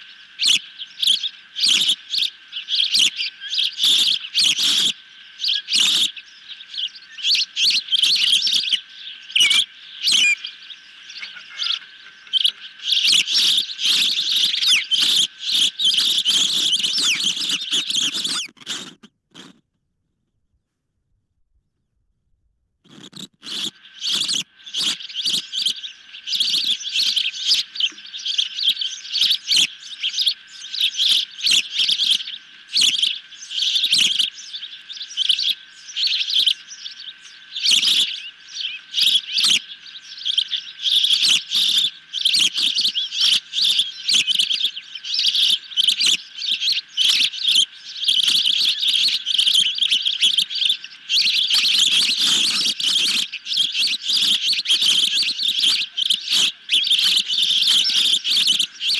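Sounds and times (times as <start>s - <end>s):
young ospreys chirping: 0.0s - 19.6s, 22.9s - 58.9s.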